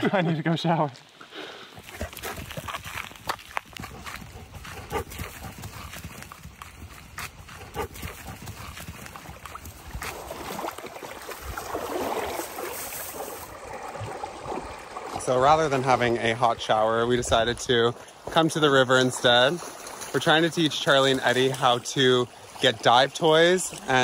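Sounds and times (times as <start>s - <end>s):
footsteps on pine needles: 1.8s - 11.4s.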